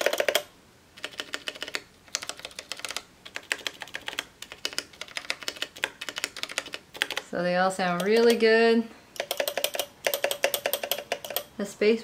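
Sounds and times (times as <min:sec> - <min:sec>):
mechanical keyboard key clicks: 0:09.2 - 0:11.5.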